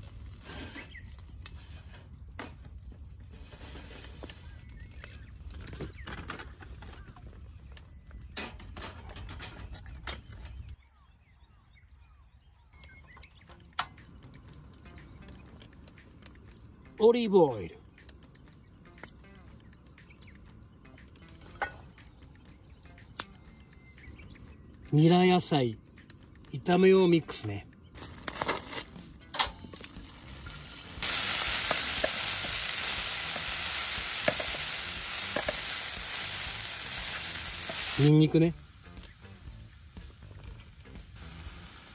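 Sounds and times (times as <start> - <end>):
small birds chirping: 0.4 - 8.8, 9.5 - 28.0, 29.9 - 41.1
vegetables sizzling in hot oil: 29.9 - 41.9.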